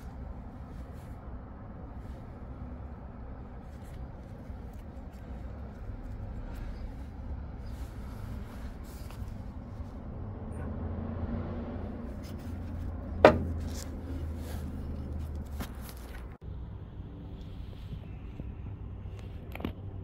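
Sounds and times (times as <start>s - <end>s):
low hum: 0.0s - 20.0s
sharp knock: 13.2s - 13.6s.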